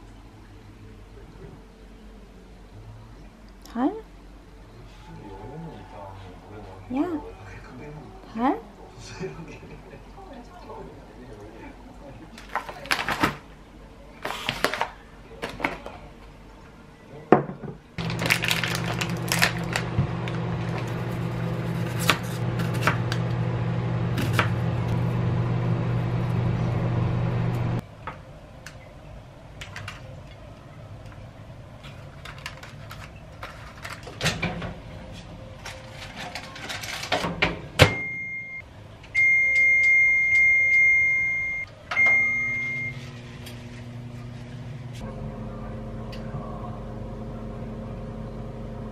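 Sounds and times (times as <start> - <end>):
plastic bag rustling: 12.4 - 13.5, 18.0 - 22.0
microwave oven humming: 18.0 - 27.8, 37.5 - 48.9
appliance beeps: 37.8 - 43.2.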